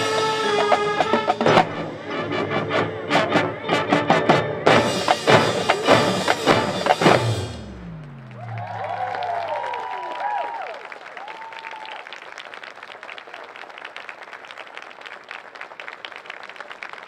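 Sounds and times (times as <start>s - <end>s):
marching band playing: 0.0s - 8.4s
sharp drum strikes: 4.0s - 8.0s
crowd cheering: 5.4s - 17.0s.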